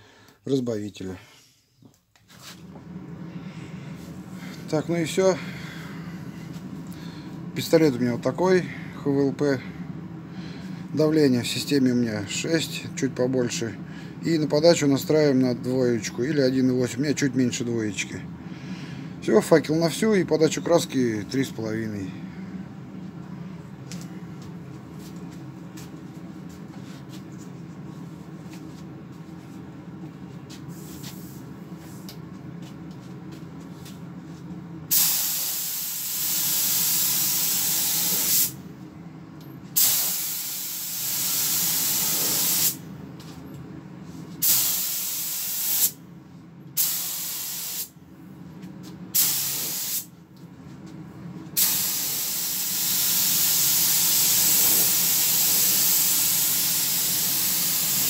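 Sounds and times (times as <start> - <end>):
low steady hum: 0.0 - 45.2
spray gun air hiss: 34.9 - 38.6, 39.8 - 42.8, 44.4 - 46.0, 46.8 - 48.0, 49.1 - 50.1, 51.6 - 58.0.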